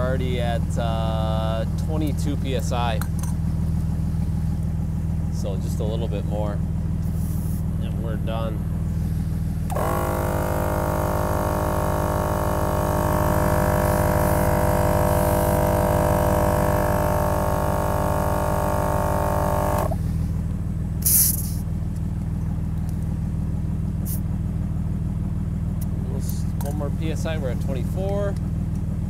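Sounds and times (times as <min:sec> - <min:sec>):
idling car engine hum: 0:00.0 - 0:29.0
air compressor whining: 0:08.8 - 0:20.3
sharp hiss of air: 0:21.0 - 0:21.6.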